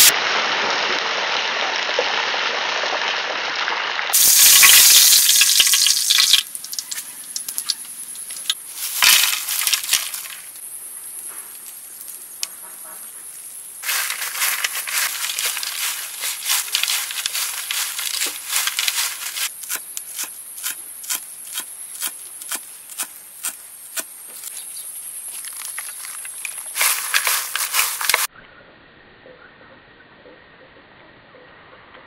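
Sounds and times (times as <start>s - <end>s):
fried insects rustling on a plate: 4.2s - 23.5s, 24.4s - 28.3s
high insect drone: 4.2s - 28.3s.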